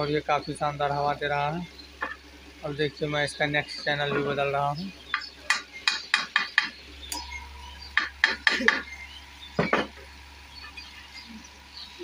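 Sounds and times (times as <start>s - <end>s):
faint steady whine: 0.0s - 12.0s
stand fan humming: 0.0s - 12.0s
fan switch clicks and clinks: 5.1s - 8.9s.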